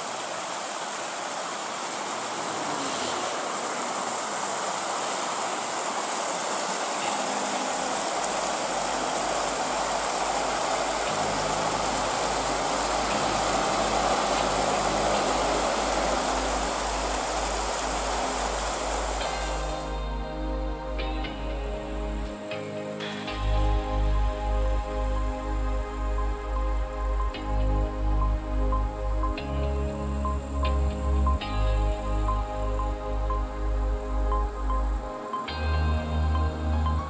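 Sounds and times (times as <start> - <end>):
steady rushing noise: 0.0 - 37.0
bus engine rumbling: 7.7 - 20.2.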